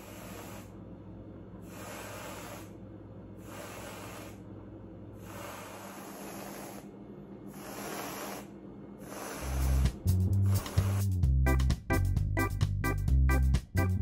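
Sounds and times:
aerosol can spraying: 7.6s - 11.2s.

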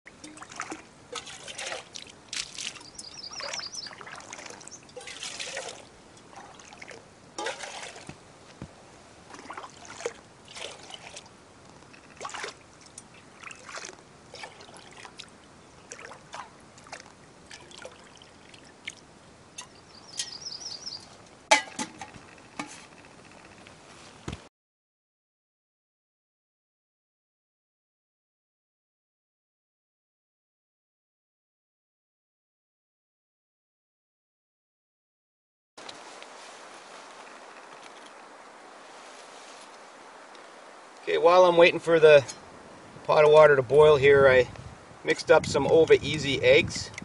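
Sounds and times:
water splashing and gurgling: 0.1s - 8.2s, 9.2s - 19.9s
bird trilling: 2.8s - 4.9s, 19.6s - 21.1s.

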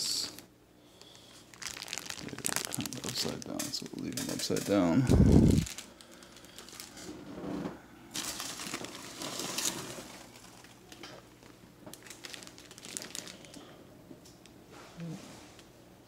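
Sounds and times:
plastic bags crinkling: 0.0s - 7.2s, 8.1s - 13.8s
polystyrene packing rustling: 0.0s - 7.3s, 8.1s - 13.7s.

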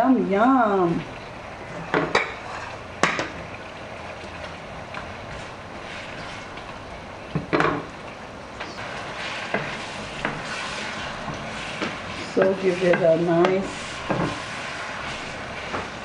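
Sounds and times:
seafood sizzling in oil: 4.6s - 16.0s.

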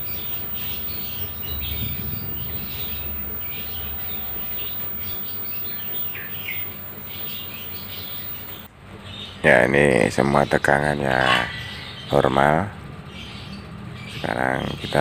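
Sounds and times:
high-pitched whine: 0.0s - 8.7s
low steady hum: 0.0s - 8.7s
small birds chirping: 0.0s - 15.0s.

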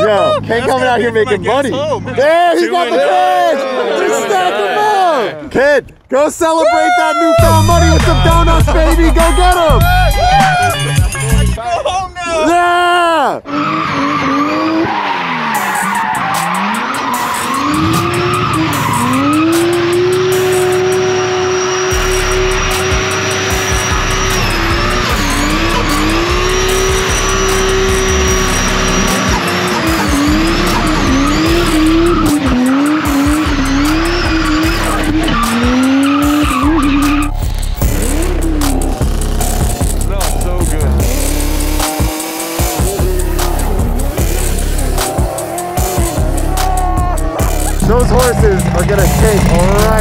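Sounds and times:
tyres squealing on tarmac: 13.4s - 37.8s, 43.2s - 50.0s
car engine revving: 13.5s - 50.0s.

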